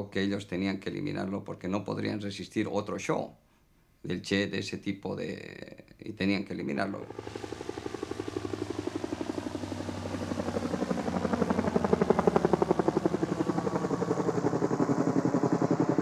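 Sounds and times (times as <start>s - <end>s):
helicopter rotor chopping: 6.7s - 16.0s.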